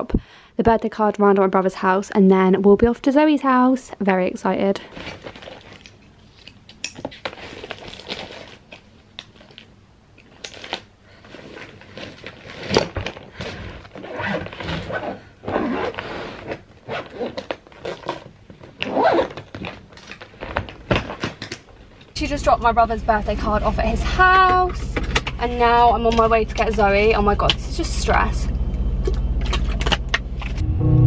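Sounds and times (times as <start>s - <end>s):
clothes rustling: 4.6s - 27.4s
zip scraping: 10.6s - 20.7s.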